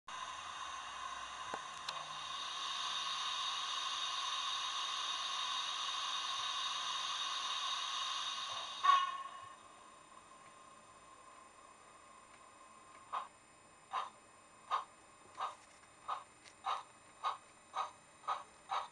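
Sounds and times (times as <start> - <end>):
steam hiss: 0.1 - 9.6.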